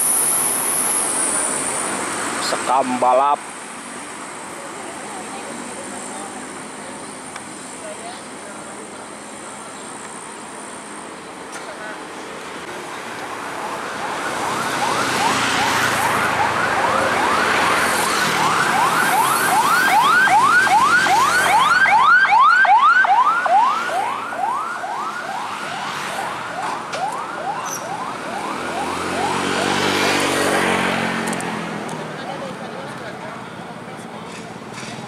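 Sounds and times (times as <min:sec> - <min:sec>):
busy road traffic: 0:00.0 - 0:35.0
siren yelping: 0:13.3 - 0:30.2.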